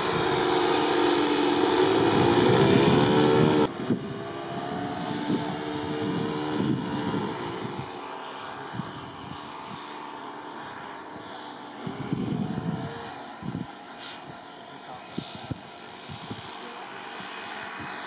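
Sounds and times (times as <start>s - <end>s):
model plane propellers droning: 0.0s - 18.0s.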